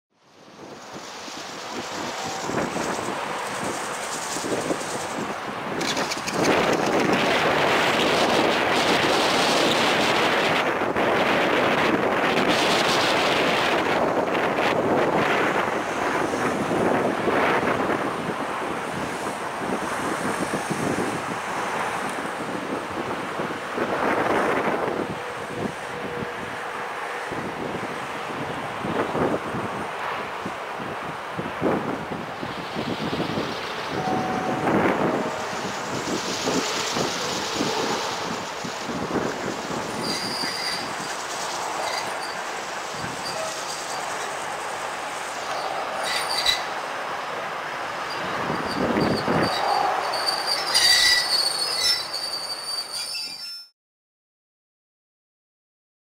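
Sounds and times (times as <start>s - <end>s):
diesel locomotive engine running: 0.3s - 17.6s, 21.6s - 50.9s
wind noise on microphone: 0.4s - 52.2s
locomotive engine running: 32.2s - 48.6s
high-pitched wheel squeals: 33.9s - 38.1s, 39.9s - 44.4s, 45.5s - 46.7s, 48.1s - 53.7s.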